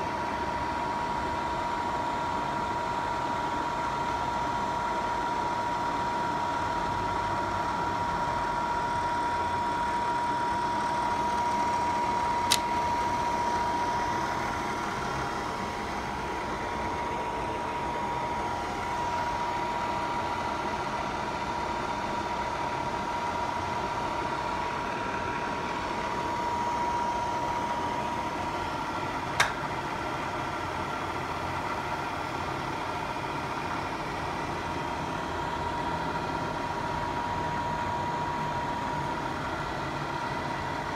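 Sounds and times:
machine whining and humming: 0.0 - 40.9.

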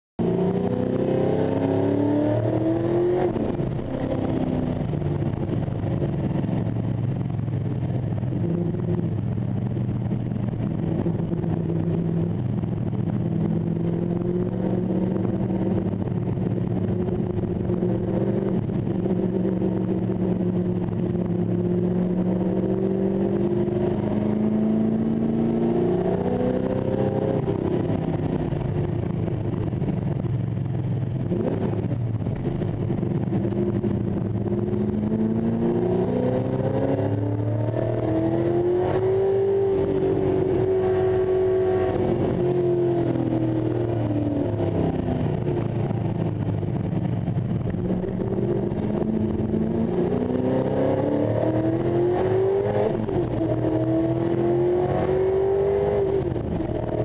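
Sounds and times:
race car engine accelerating: 0.2 - 5.5, 32.4 - 46.2, 47.6 - 57.0.

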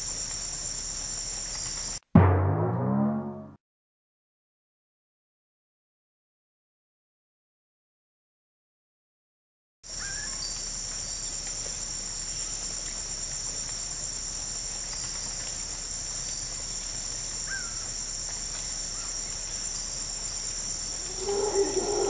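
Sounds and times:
high-pitched insect chorus: 0.0 - 2.0, 9.9 - 22.0.

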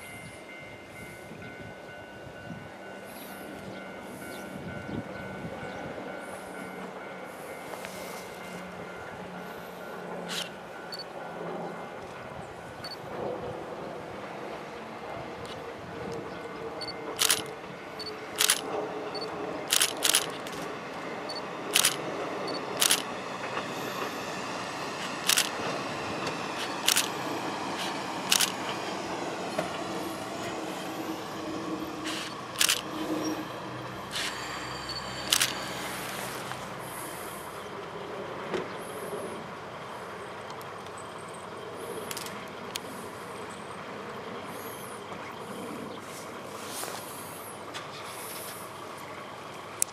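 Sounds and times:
diesel railcar running: 0.0 - 49.9
camera shutters clicking: 17.2 - 17.5, 18.4 - 18.7, 19.7 - 20.7, 21.8 - 22.0, 22.8 - 23.0, 25.3 - 25.6, 26.6 - 27.1, 27.8 - 28.6, 32.1 - 32.8, 35.3 - 35.6.

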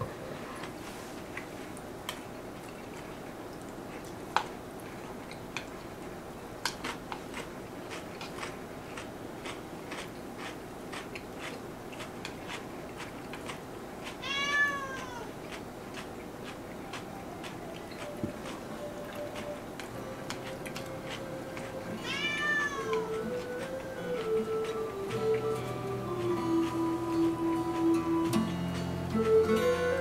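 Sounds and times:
chopsticks clicking against bowls: 6.6 - 30.0
cat meowing: 14.2 - 15.3, 22.0 - 23.2.

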